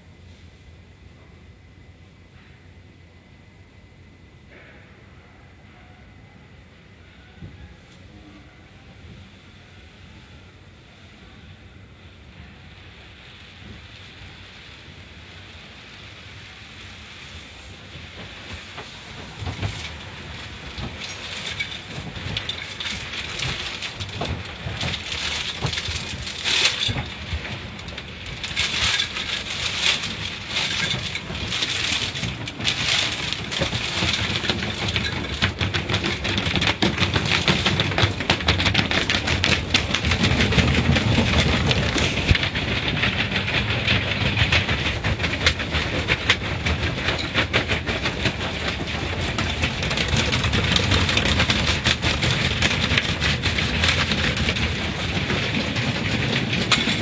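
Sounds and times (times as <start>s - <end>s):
wash brushes beating on car: 18.2s - 57.0s.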